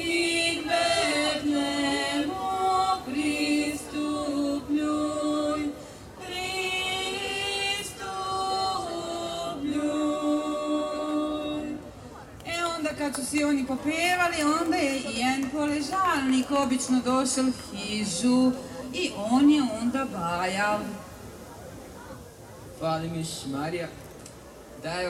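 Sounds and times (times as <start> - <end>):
group singing unaccompanied: 0.0 - 12.0.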